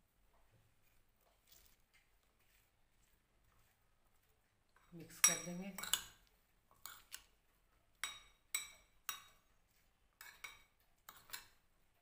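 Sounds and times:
fork clinking against glass bowl: 0:08.0 - 0:09.4, 0:10.2 - 0:11.6.

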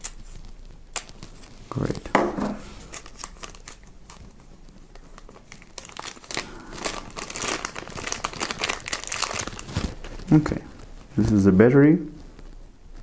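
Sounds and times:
plastic bag crinkling: 0:02.7 - 0:11.2.

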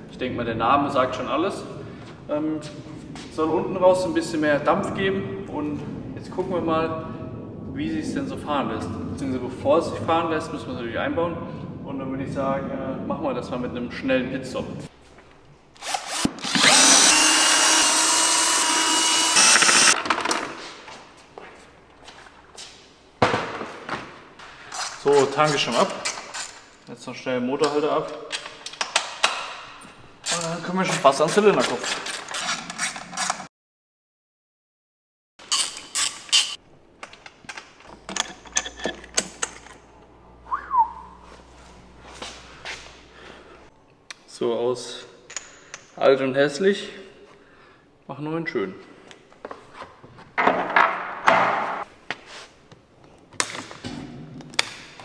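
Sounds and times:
cordless ratchet whining: 0:15.8 - 0:20.0.

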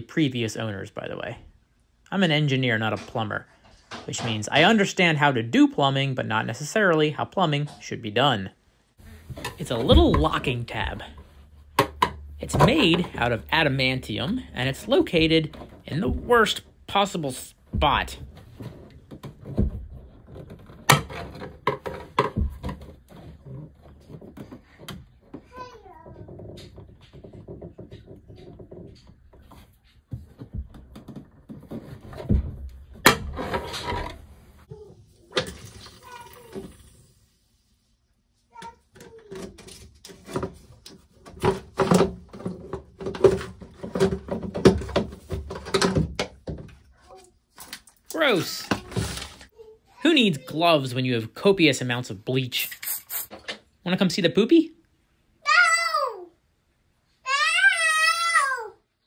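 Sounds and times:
hard plastic knocking and rattling: 0:09.3 - 0:16.8, 0:17.6 - 0:34.3, 0:38.6 - 0:46.9.

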